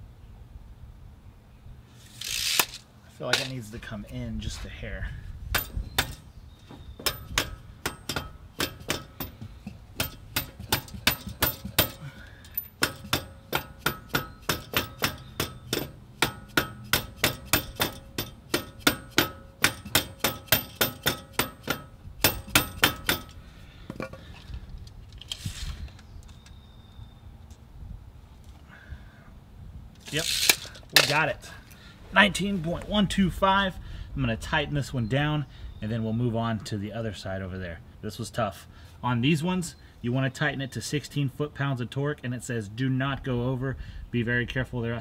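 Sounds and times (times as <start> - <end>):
mallet striking steel clamp: 5.5 - 6.2, 7.0 - 12.0, 12.6 - 24.1.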